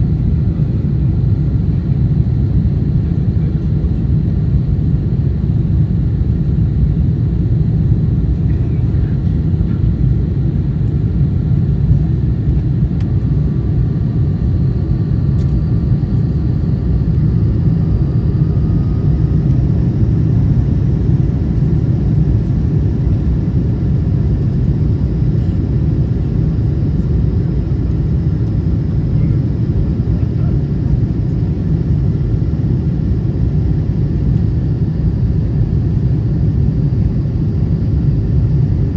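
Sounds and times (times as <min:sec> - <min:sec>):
airflow and engine rumble: 0:00.0 - 0:38.9
high engine whine: 0:00.0 - 0:38.9.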